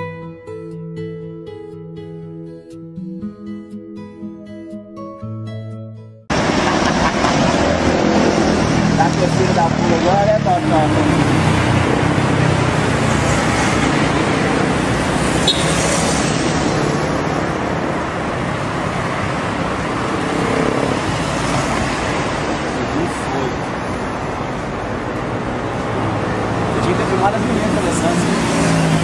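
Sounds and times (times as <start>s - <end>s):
road traffic: 6.3s - 29.0s.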